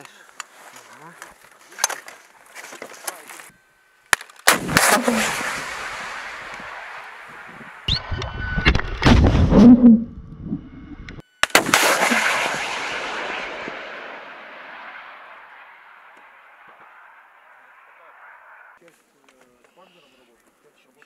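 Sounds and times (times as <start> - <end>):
missile rushing noise with cracks: 4.5 - 9.6, 11.4 - 17.9
missile launch blast: 4.5 - 10.0, 11.4 - 17.4.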